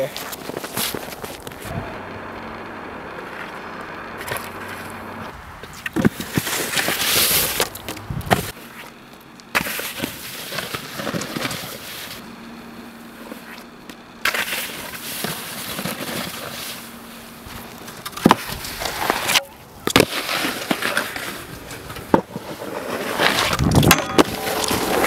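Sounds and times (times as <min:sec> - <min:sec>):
snowskate deck scraping and sliding: 0:00.0 - 0:02.3, 0:03.1 - 0:12.2, 0:13.2 - 0:25.0.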